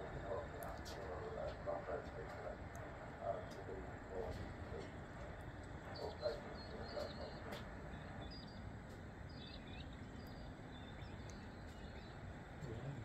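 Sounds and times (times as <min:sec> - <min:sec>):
murmured words: 0:00.0 - 0:05.1, 0:06.0 - 0:07.7, 0:12.6 - 0:13.0
faint high bird chirps: 0:09.3 - 0:12.2.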